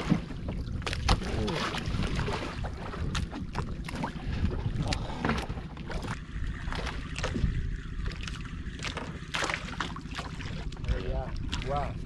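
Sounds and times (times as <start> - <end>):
wind buffeting microphone: 0.0 - 8.2
water sloshing against boat: 0.0 - 12.0.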